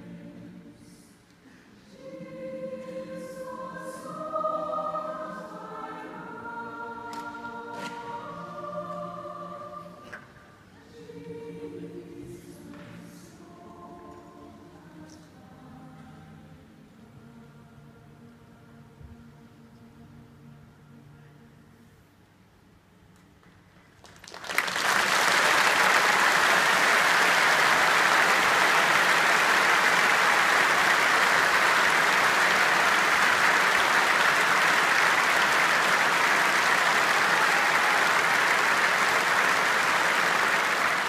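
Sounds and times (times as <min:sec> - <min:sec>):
audience applause: 0:24.0 - 0:41.0.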